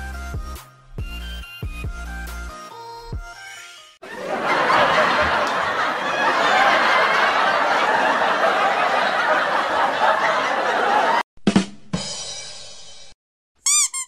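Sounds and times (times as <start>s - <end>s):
crowd laughing: 4.0s - 11.2s.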